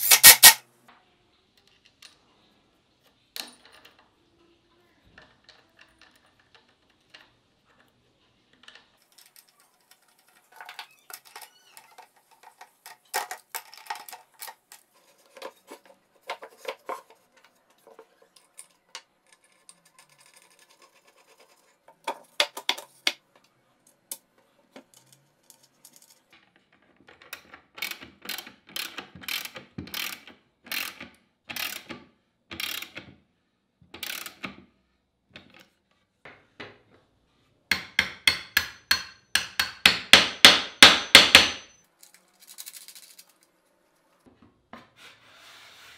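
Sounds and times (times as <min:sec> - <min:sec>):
socket ratchet wrench ratcheting: 0:00.0 - 0:00.6
small metal clicks and knocks: 0:05.0 - 0:33.1.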